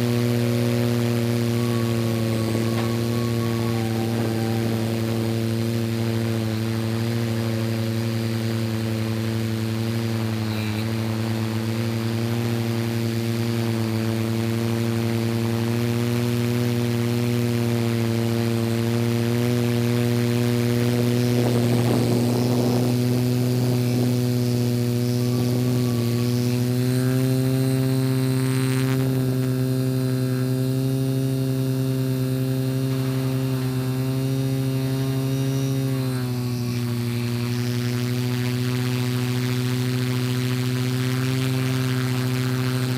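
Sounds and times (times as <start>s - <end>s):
drone propellers humming: 0.0s - 42.9s.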